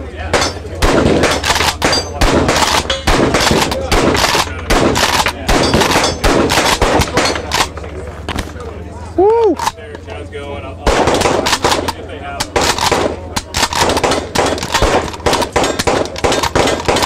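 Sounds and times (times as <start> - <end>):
shotgun firing: 0.3 - 7.7, 10.8 - 17.0.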